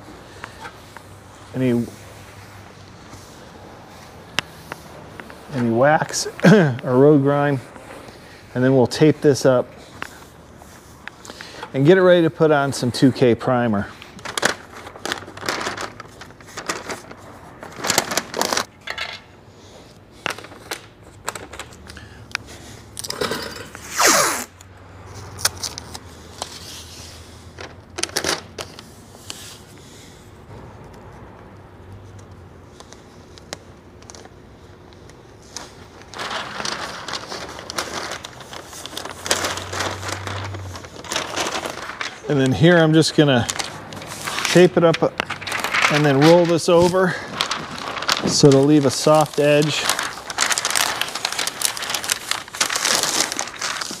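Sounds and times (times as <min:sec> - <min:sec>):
tape tearing: 0:23.0 - 0:24.6, 0:35.5 - 0:54.0
tape pulled off roll: 0:23.6 - 0:24.6.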